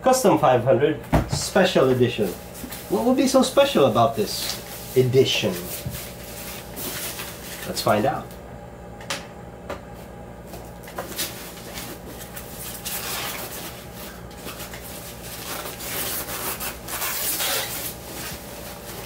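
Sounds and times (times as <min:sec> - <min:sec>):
wrapping crinkling and rustling: 0:10.8 - 0:19.0.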